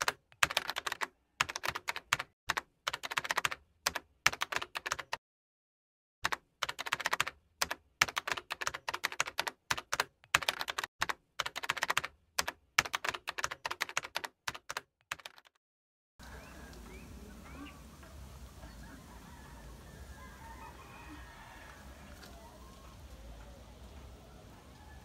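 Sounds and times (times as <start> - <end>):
keyboard typing clicks: 0.0 - 5.2, 6.2 - 15.6.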